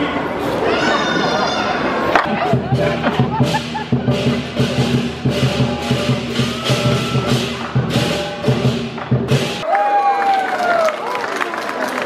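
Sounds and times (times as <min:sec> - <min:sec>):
large drum beating: 0:02.3 - 0:09.6
cymbal crashes: 0:02.7 - 0:09.6.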